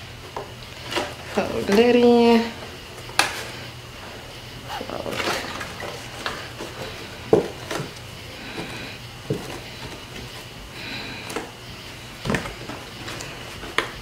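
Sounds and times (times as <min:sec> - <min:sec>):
plastic crinkling and tapping: 0:05.1 - 0:10.4, 0:12.2 - 0:14.0.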